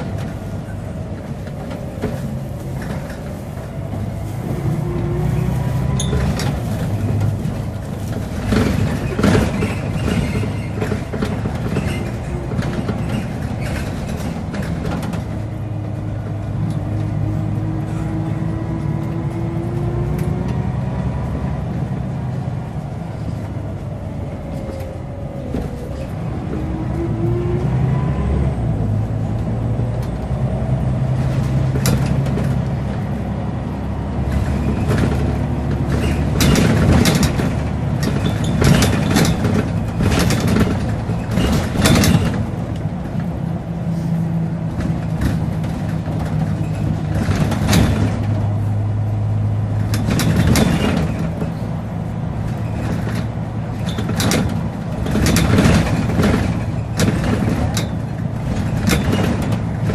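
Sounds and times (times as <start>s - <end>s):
bus diesel engine droning: 0.0s - 59.9s
bodywork rattling: 49.7s - 59.9s.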